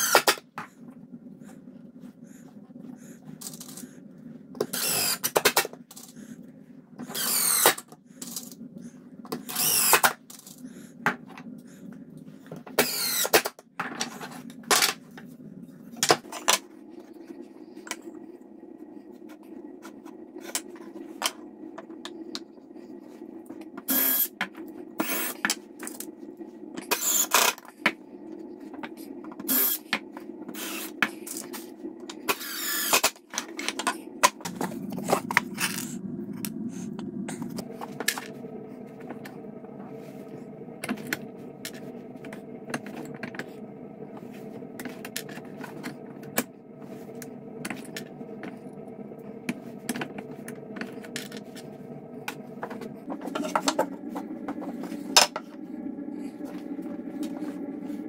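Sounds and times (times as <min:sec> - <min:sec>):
steady background hum: 0:00.0 - 0:58.0
cordless drill driving screws: 0:04.7 - 0:05.4, 0:07.1 - 0:07.8, 0:09.5 - 0:10.1, 0:12.8 - 0:13.4, 0:32.3 - 0:33.1.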